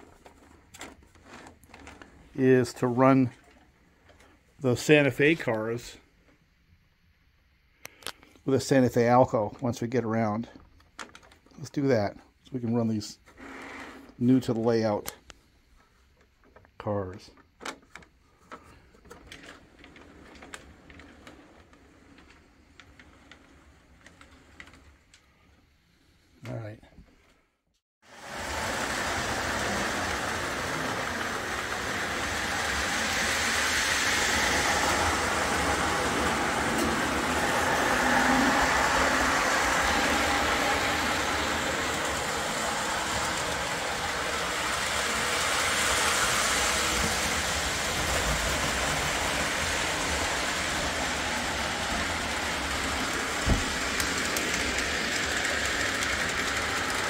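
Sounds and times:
model train rolling on track: 0.0s - 6.0s, 17.6s - 25.6s, 28.1s - 57.0s.

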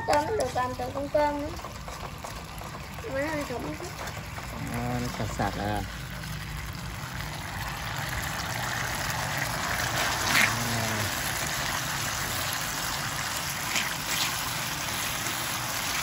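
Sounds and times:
sauce simmering with a hiss: 3.8s - 16.0s.

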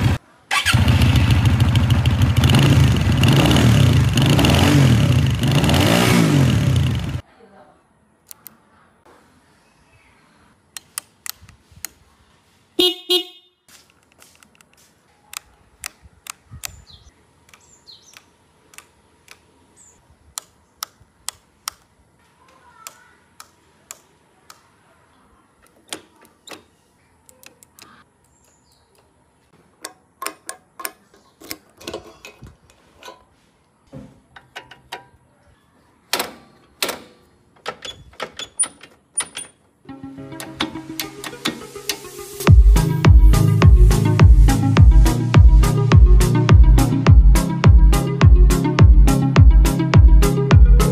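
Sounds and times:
motorcycle horn beep: 12.8s - 13.6s
handlebar switches clicking: 17.4s - 19.5s, 20.3s - 21.9s, 22.8s - 24.7s.

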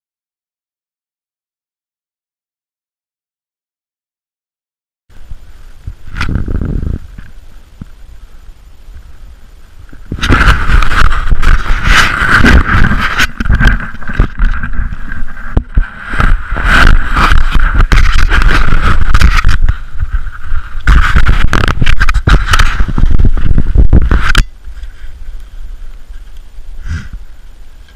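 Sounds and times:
wind buffeting microphone: 5.2s - 8.0s, 9.8s - 27.9s
skis scraping over snow: 9.0s - 27.9s.

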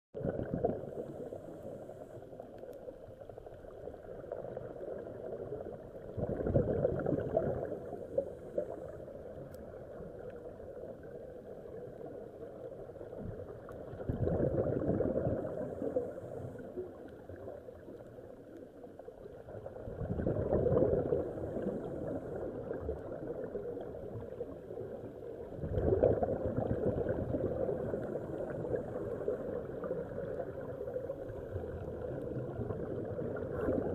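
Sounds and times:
exhaled air bubbling underwater: 0.2s - 33.9s
muffled underwater hiss: 0.2s - 33.9s.

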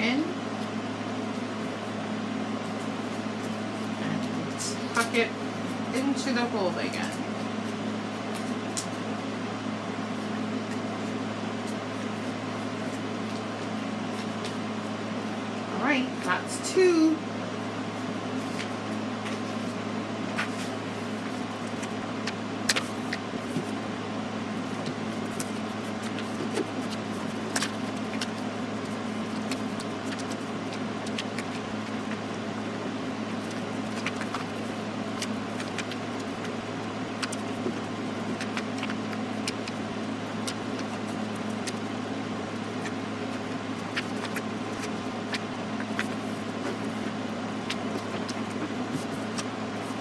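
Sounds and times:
steady background hum: 0.0s - 50.0s
paper being folded and creased: 20.4s - 23.8s, 24.6s - 50.0s.

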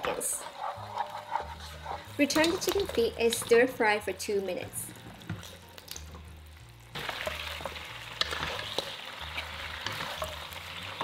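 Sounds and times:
wooden spatula scraping a pan: 0.0s - 3.7s, 7.0s - 11.0s
food sizzling in a wok: 0.0s - 11.0s.

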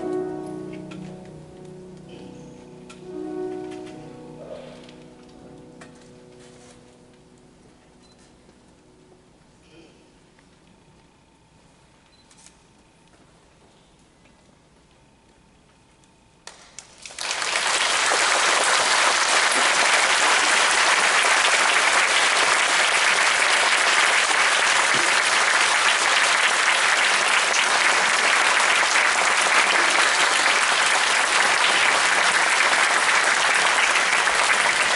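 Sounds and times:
audience applauding: 16.5s - 34.9s.

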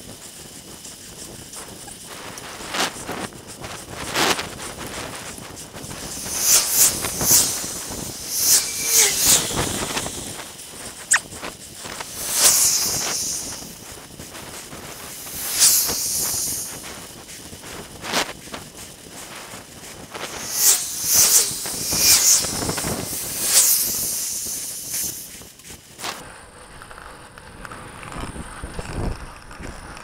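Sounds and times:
wind buffeting microphone: 0.0s - 30.0s
sharp click: 11.1s - 11.4s.

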